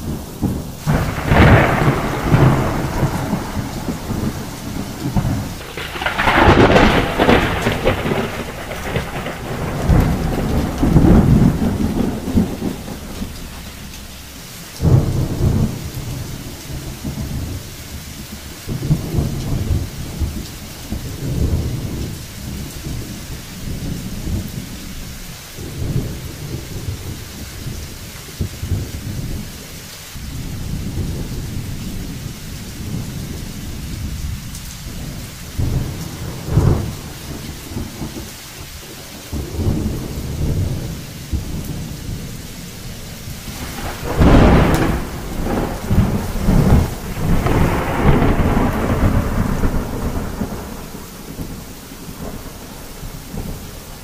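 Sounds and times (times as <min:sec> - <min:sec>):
rolls of thunder: 0:00.0 - 0:14.1, 0:14.8 - 0:17.6, 0:30.4 - 0:38.7, 0:43.3 - 0:53.6
steady rain: 0:00.0 - 0:54.0.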